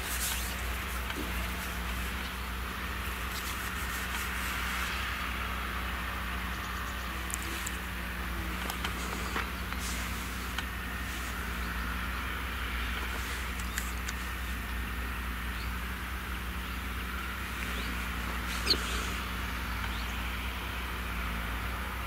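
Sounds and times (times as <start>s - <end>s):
tractor diesel engine under load: 0.0s - 22.0s
faint clicks: 8.5s - 11.7s, 12.9s - 14.6s.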